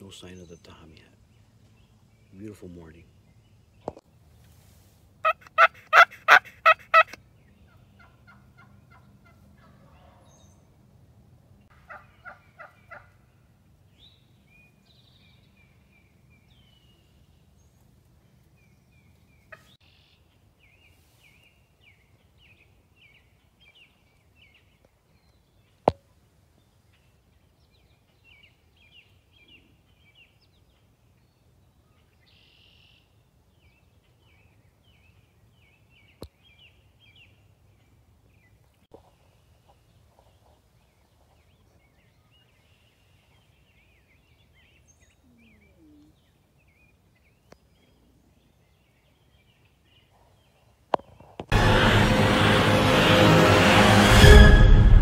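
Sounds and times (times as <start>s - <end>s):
small birds chirping: 0.0s - 4.6s, 11.6s - 51.5s
turkey calling: 5.2s - 10.4s, 11.7s - 13.3s.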